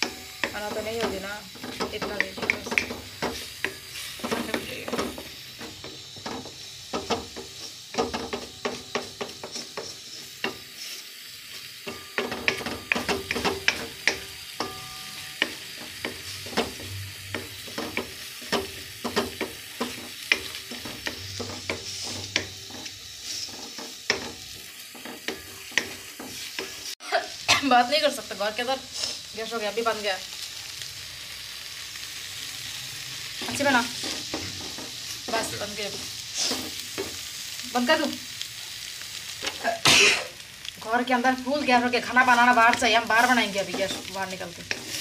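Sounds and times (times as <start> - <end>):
wooden spatula scraping a wok: 0.0 - 27.0, 28.6 - 29.5, 33.2 - 37.6, 41.4 - 45.0
eggs sizzling: 0.0 - 45.0.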